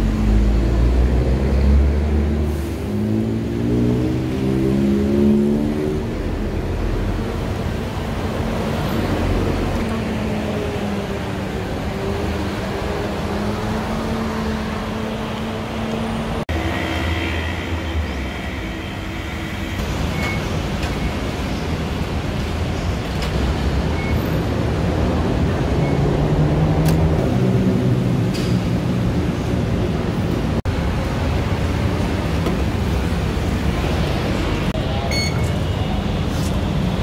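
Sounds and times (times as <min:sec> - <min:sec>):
vehicle noise with high whines: 0:00.0 - 0:37.0.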